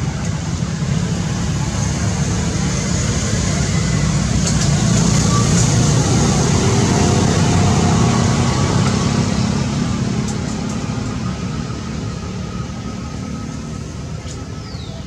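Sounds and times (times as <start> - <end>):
motor vehicle rumbling: 0.0 - 15.0.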